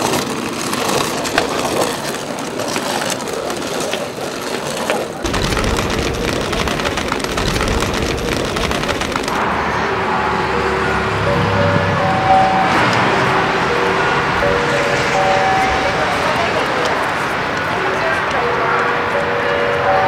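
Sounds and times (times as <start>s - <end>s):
clicks and rattles: 0.0s - 9.4s
road traffic rumble: 0.0s - 20.0s.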